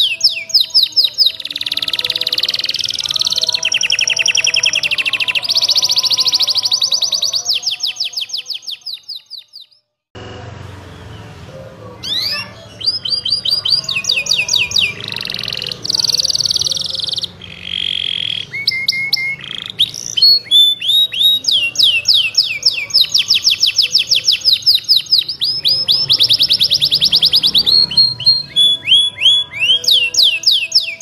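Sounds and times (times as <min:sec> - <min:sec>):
canary singing: 0:00.0 - 0:09.9, 0:10.7 - 0:31.0.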